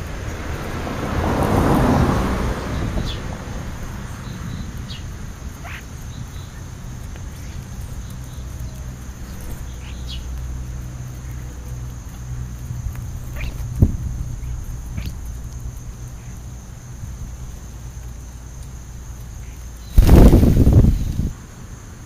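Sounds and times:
steady low rumble: 0:02.5 - 0:21.3
birds chirping: 0:02.6 - 0:11.8, 0:13.1 - 0:16.5
loud rushing noise: 0:19.9 - 0:21.3.

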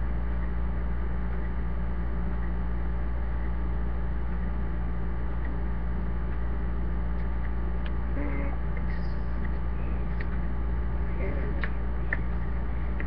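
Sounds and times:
electrical hum with hiss: 0:00.0 - 0:13.0
faint voice: 0:08.1 - 0:09.2.

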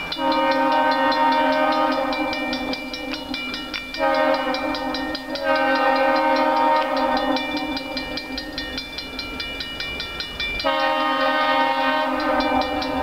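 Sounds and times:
crossing signal bell ringing: 0:00.0 - 0:13.0
train air horn blasts: 0:00.2 - 0:02.7, 0:04.0 - 0:07.5, 0:10.6 - 0:13.0.

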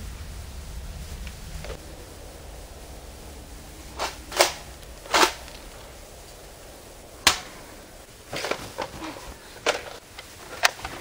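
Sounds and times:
sharp snaps: 0:01.2 - 0:11.0
toy blaster plastic clacks: 0:08.3 - 0:11.0.

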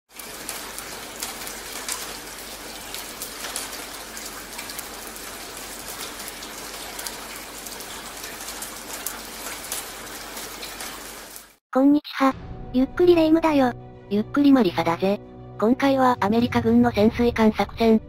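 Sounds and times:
rain on wet pavement: 0:00.1 - 0:11.6.

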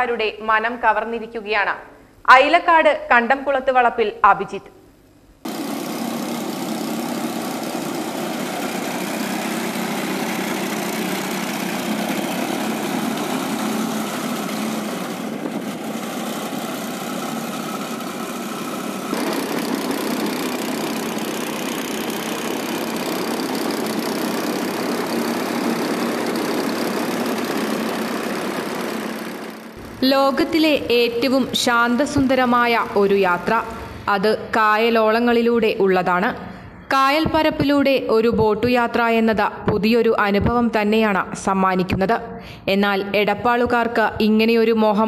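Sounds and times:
airboat engine and propeller running: 0:05.5 - 0:34.0.

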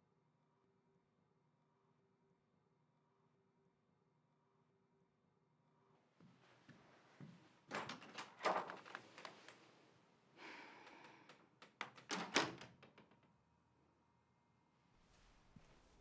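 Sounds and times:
door knocks and clicks: 0:07.7 - 0:09.3, 0:10.8 - 0:13.2.

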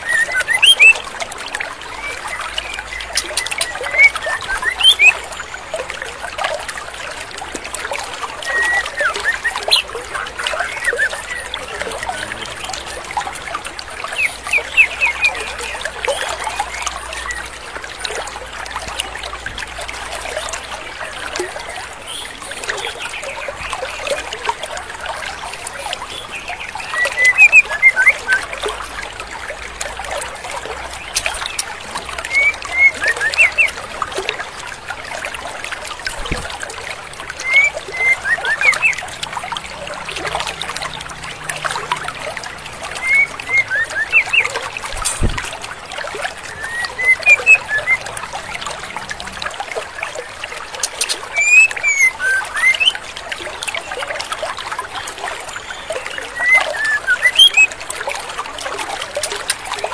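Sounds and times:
bird high chirping calls: 0:00.0 - 0:01.0, 0:02.0 - 0:05.2, 0:08.5 - 0:13.0, 0:14.1 - 0:15.8, 0:26.8 - 0:28.4, 0:32.3 - 0:33.8, 0:37.4 - 0:39.0, 0:43.0 - 0:44.5, 0:46.5 - 0:48.1, 0:50.9 - 0:53.0, 0:55.8 - 0:57.7
stream water running: 0:00.0 - 0:59.9.

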